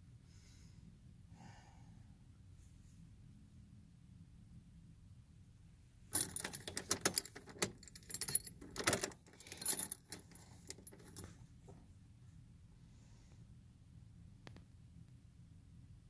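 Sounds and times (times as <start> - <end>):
keys jangling: 6.2 - 11.4.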